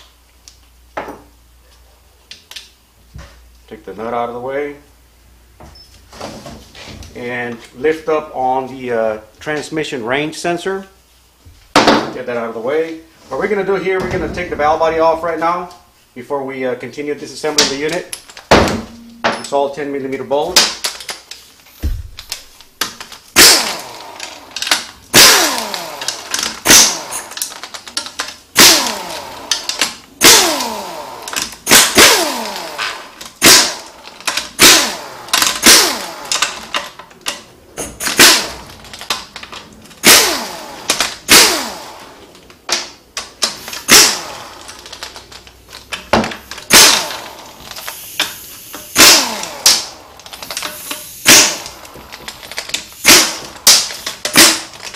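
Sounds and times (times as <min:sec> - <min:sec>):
pneumatic impact wrench rattling: 0:20.6 - 0:54.9.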